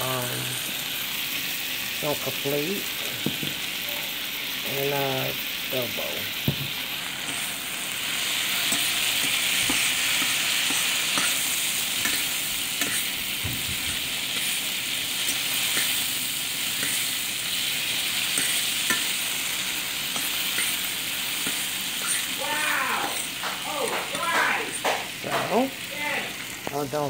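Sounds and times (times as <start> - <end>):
onions sizzling in a skillet: 0.0 - 27.0
fork clicking against pan: 12.0 - 13.1.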